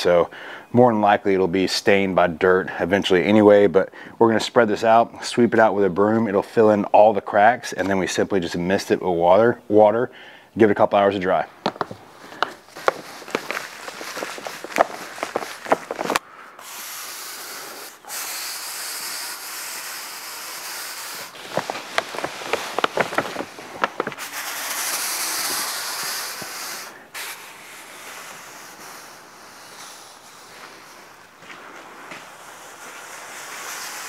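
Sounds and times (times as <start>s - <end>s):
shoe scuffs on pavers: 11.6s - 16.2s, 21.1s - 28.4s, 29.7s - 33.2s
push broom scraping: 11.9s - 34.0s
sand pouring onto pavers: 11.9s - 34.0s.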